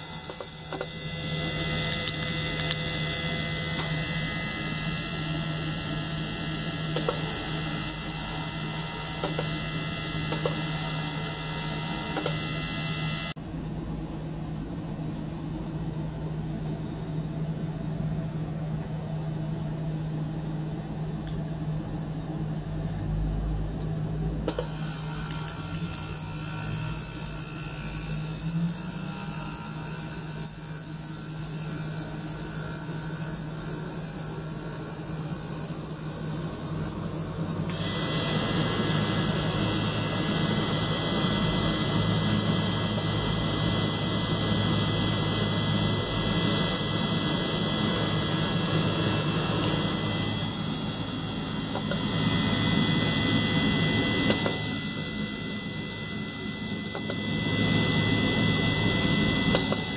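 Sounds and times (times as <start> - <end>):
steady machine hum: 0.0 - 59.9.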